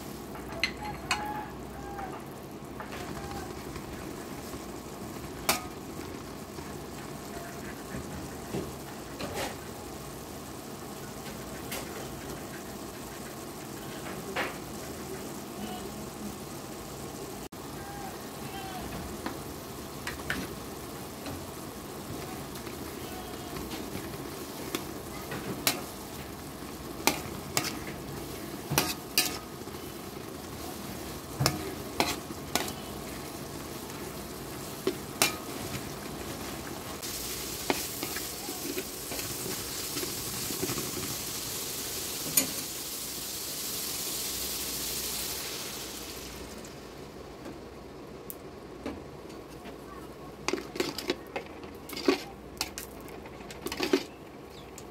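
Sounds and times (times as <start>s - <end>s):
onions sizzling in oil: 0.0s - 54.9s.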